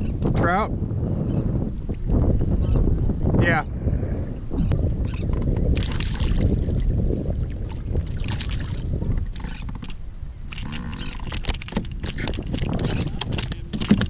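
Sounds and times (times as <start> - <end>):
wind rumbling on microphone: 0.0 - 14.0
fish splashing at the surface: 5.8 - 6.9, 7.6 - 8.9.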